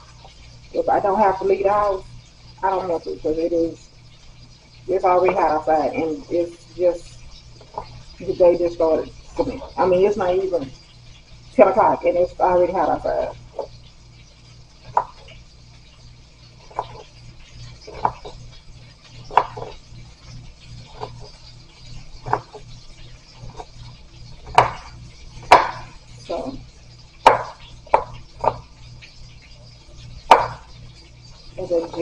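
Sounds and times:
knife chopping on plastic board: 0:16.7 - 0:17.1, 0:17.8 - 0:18.4, 0:19.2 - 0:19.8, 0:22.2 - 0:22.6, 0:24.4 - 0:25.9, 0:27.2 - 0:28.6, 0:30.3 - 0:30.7.

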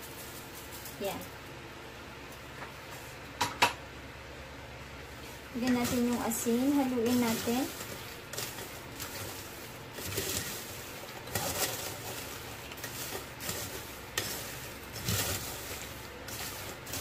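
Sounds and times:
nuts rattling against spoon and colander: 0:05.5 - 0:17.0.

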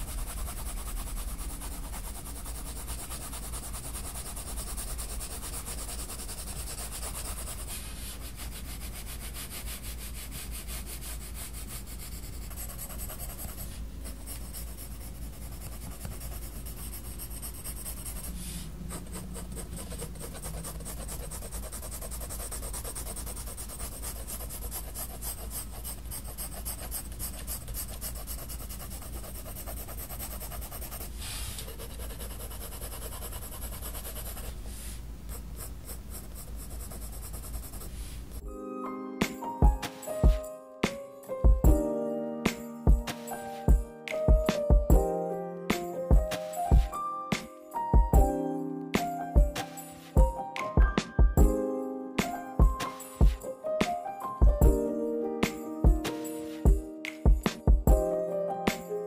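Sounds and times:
coloured pencil scratching on paper: 0:00.0 - 0:38.4.

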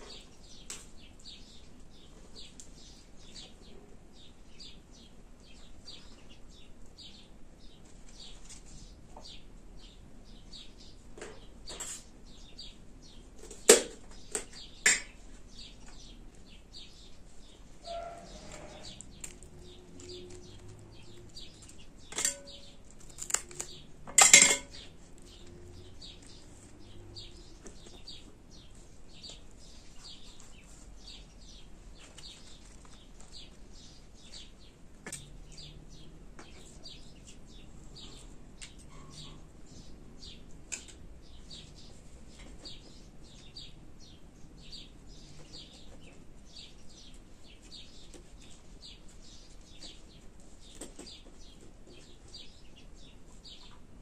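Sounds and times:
small birds chirping: 0:00.0 - 0:54.0
metal spoon clinking on pot: 0:22.1 - 0:22.8, 0:24.1 - 0:24.9.

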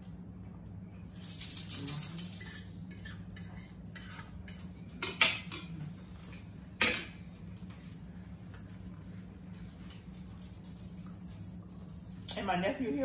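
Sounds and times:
steady low hum: 0:00.0 - 0:13.0
forks clinking on plates: 0:01.2 - 0:07.2.

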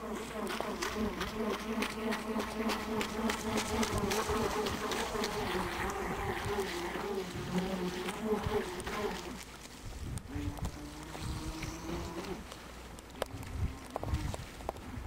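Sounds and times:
small boat motor buzzing: 0:00.0 - 0:09.4, 0:10.2 - 0:12.5.

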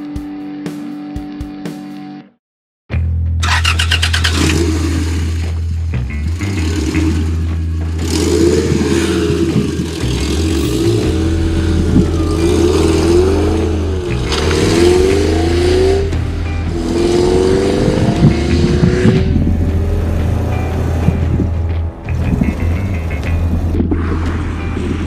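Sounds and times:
car engine accelerating: 0:03.4 - 0:25.0.

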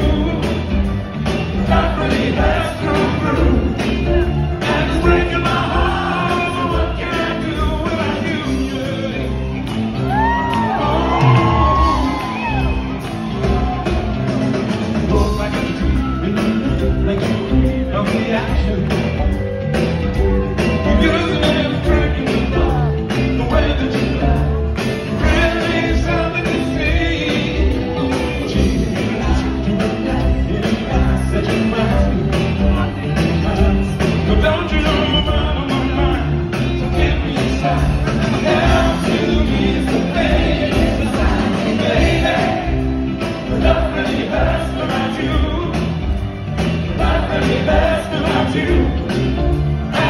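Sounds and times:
man singing: 0:00.0 - 0:00.9, 0:01.6 - 0:09.6, 0:15.0 - 0:19.3, 0:20.4 - 0:46.0
live band performing: 0:00.0 - 0:50.0.

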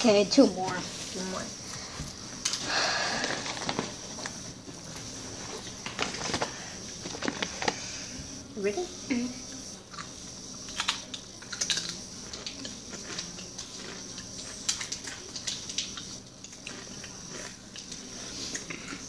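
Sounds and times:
tortilla chips crunching: 0:10.7 - 0:19.0.

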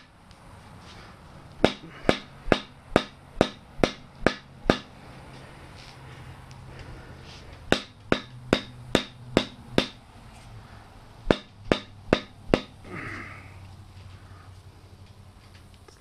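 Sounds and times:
rubber mallet striking axe handle: 0:01.6 - 0:04.9, 0:07.7 - 0:10.0, 0:11.2 - 0:12.8.

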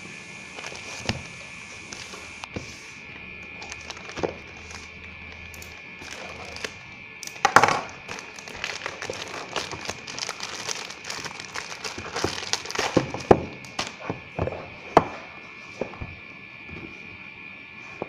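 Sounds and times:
plastic mailer bag crinkling: 0:00.5 - 0:02.7, 0:03.4 - 0:14.0.

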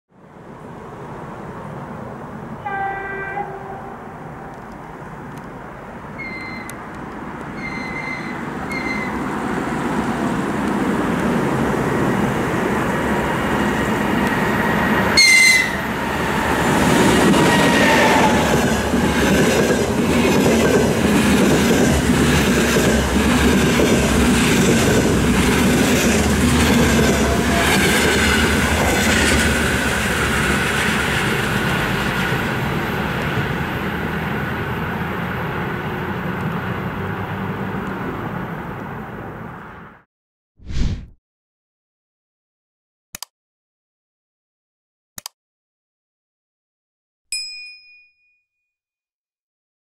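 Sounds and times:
locomotive whistle: 0:02.6 - 0:04.1, 0:06.2 - 0:06.8, 0:07.6 - 0:09.2, 0:15.1 - 0:16.4
high wheel squeal: 0:06.2 - 0:06.8, 0:07.5 - 0:09.3
train wheels rumbling on rails: 0:06.2 - 0:38.0.

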